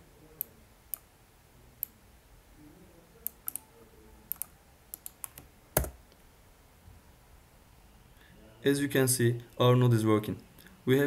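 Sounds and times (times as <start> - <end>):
keyboard and mouse clicks: 3.2 - 3.6, 4.3 - 6.0.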